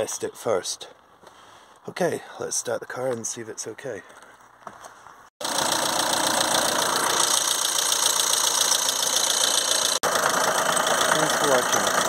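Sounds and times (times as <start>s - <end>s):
diesel engine idling: 5.4s - 12.0s.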